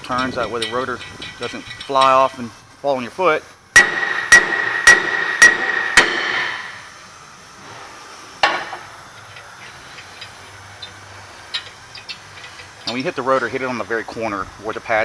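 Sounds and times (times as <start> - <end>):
rotor ringing: 0.0 - 7.6
hammer striking metal rotor: 3.8 - 6.8, 8.4 - 13.4.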